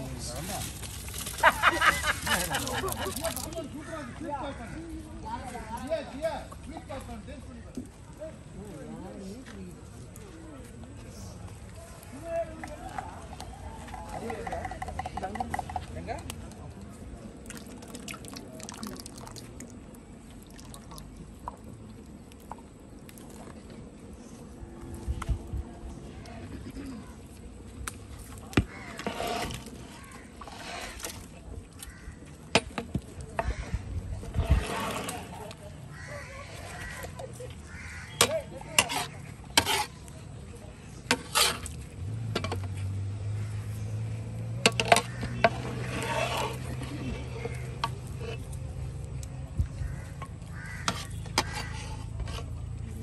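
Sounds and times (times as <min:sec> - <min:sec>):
oil pouring into broth: 0:17.5 - 0:19.7.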